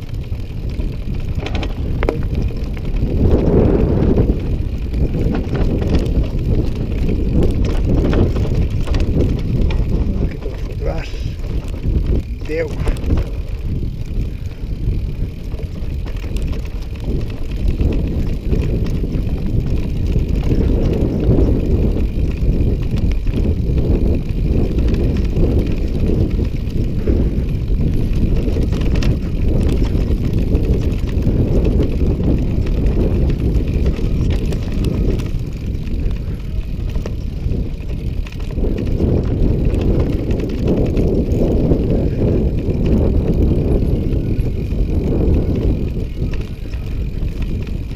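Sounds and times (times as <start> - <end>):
bike knocking and rattling: 0.0 - 47.9
tyres rumbling on trail: 0.0 - 47.9
wind on microphone: 0.0 - 47.9.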